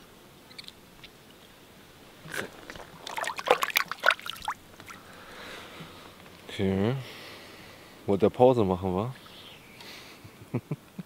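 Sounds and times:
water splashing and dripping: 2.3 - 5.0.

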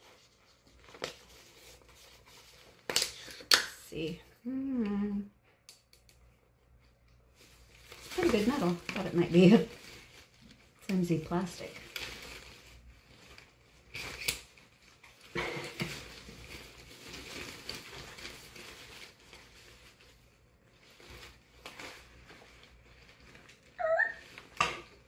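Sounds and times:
umbrella fabric rustling: 6.8 - 25.0
short high-pitched cry: 23.8 - 24.2.

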